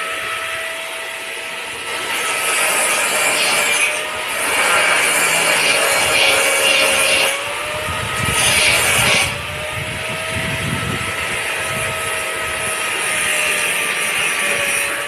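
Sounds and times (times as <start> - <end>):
power tool motor whining: 0.0 - 15.0.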